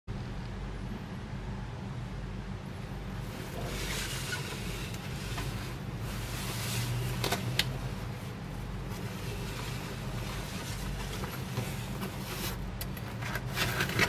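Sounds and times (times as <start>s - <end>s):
steady low rumble: 0.1s - 14.0s
packaging rubbing and rustling: 3.3s - 14.0s.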